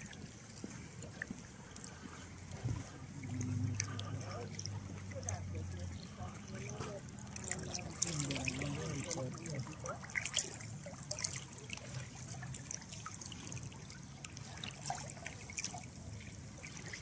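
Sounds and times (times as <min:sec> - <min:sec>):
small trickling splashes: 0:00.0 - 0:17.0
water lapping at shore: 0:00.0 - 0:17.0.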